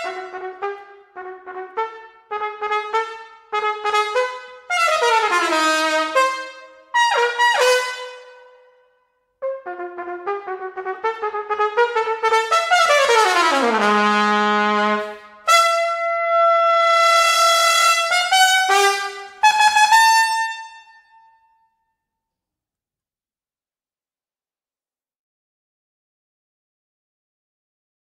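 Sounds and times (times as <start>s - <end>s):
trumpet playing: 0.0s - 21.5s.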